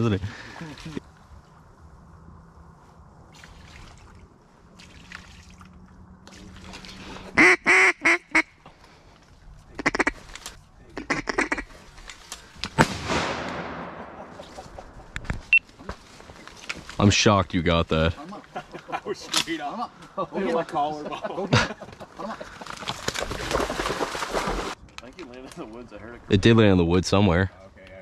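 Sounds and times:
duck quacking: 7.4 - 8.5, 9.8 - 10.2, 11.0 - 11.7
shotgun shot echoing: 12.8 - 15.0.

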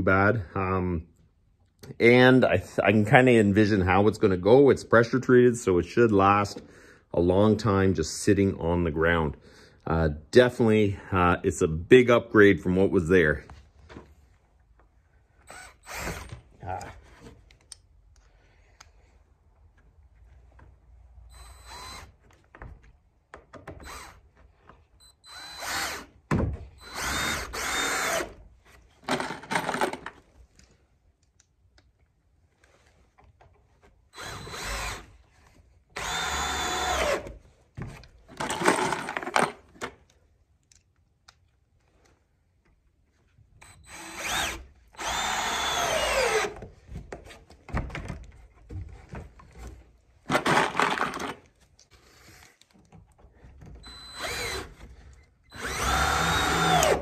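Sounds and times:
cordless drill driving screws: 15.4 - 16.4, 21.3 - 22.1, 23.7 - 24.2, 25.2 - 26.1, 26.8 - 28.4, 34.1 - 35.2, 36.0 - 37.4, 43.6 - 46.6, 53.8 - 57.0.

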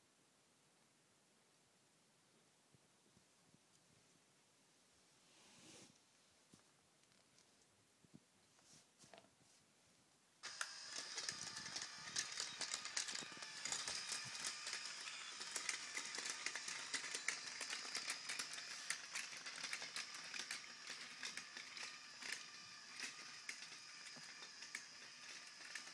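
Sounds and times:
electric motor whine: 10.4 - 25.9.

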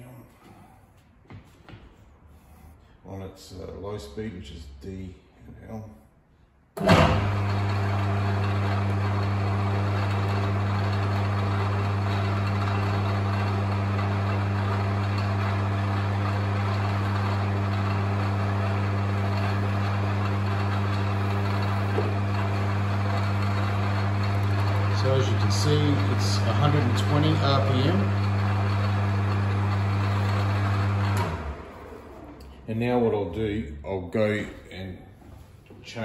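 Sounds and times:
metal lathe humming: 6.8 - 32.6.

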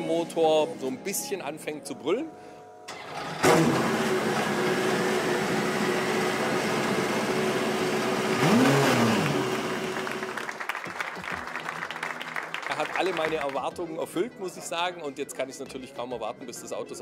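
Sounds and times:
hand clapping: 9.2 - 13.8.

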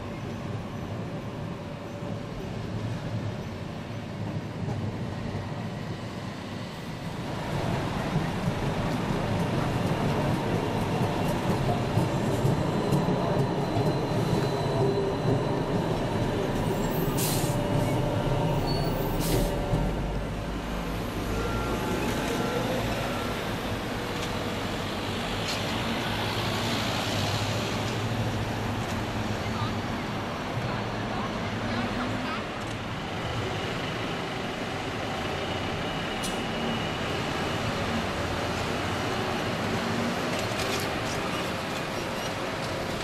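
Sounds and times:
street traffic noise: 0.0 - 43.0
electric trolleybus moving off: 0.1 - 43.0
air hissing: 17.0 - 17.7.

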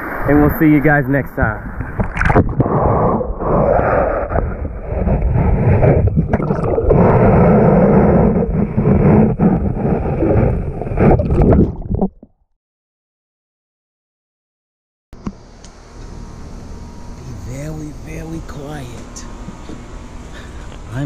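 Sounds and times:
muffled underwater surf churning: 0.0 - 12.4.

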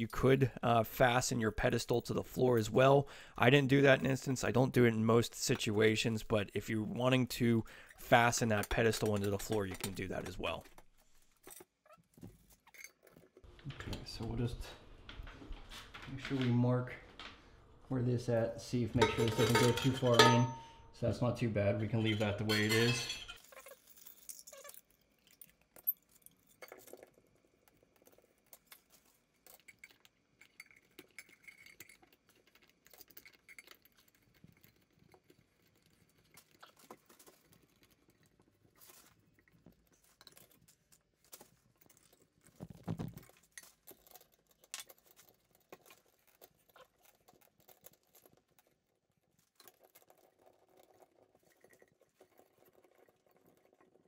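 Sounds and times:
metal pipe parts clinking: 7.9 - 10.8, 18.9 - 21.0, 21.8 - 27.0.

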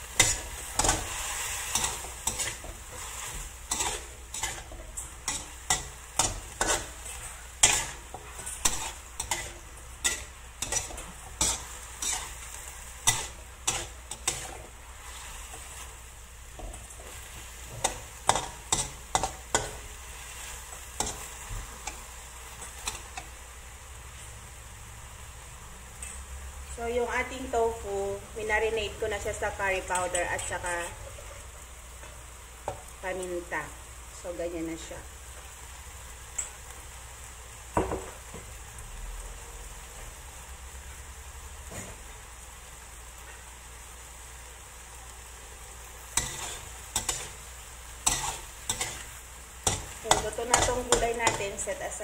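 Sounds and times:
metal spatula scraping wok: 0.0 - 16.0, 46.1 - 51.8
vegetables sizzling in wok: 0.0 - 52.0.

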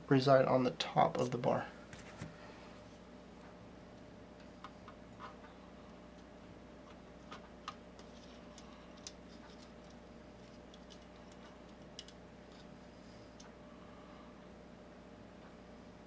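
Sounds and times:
steady low hum: 0.0 - 16.0
small plastic parts clicking: 9.0 - 12.6.

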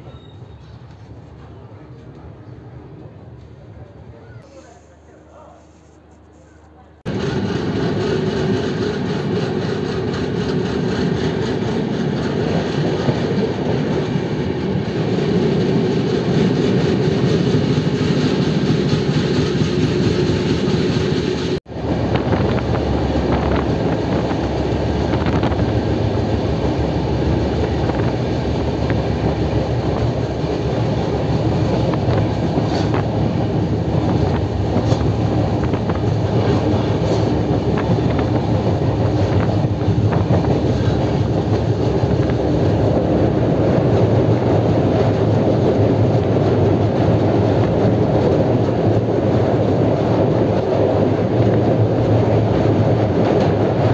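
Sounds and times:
train rumbling on rails: 0.0 - 53.9.

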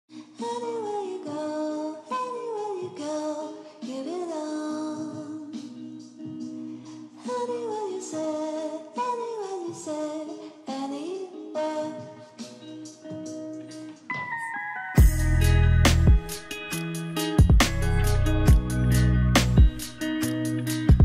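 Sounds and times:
high gliding melody: 14.1 - 20.6.

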